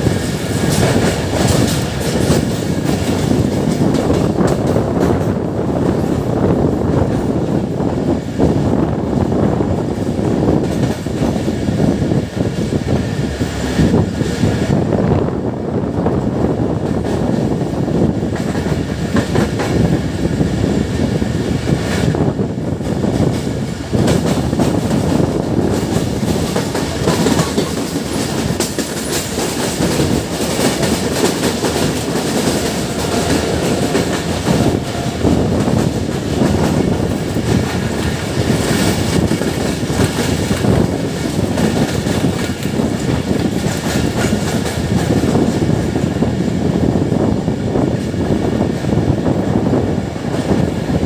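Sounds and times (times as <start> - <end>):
wheels clacking over rail joints: 0.0 - 6.2, 22.8 - 45.7
train wheels rumbling on rails: 0.0 - 51.0.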